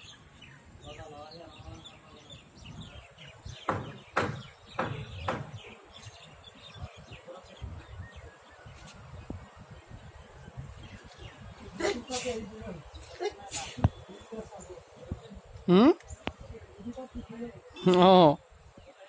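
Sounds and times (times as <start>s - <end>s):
birds chirping: 0.0s - 19.0s
sharp knocks: 3.6s - 5.6s.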